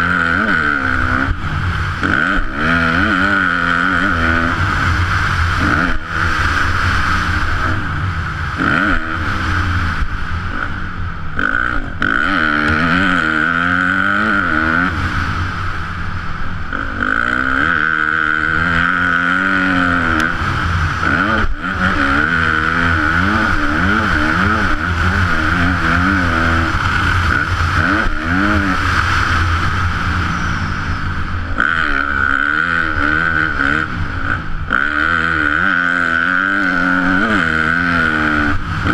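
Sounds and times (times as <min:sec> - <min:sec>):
motocross engine revving: 0:00.0 - 0:38.9.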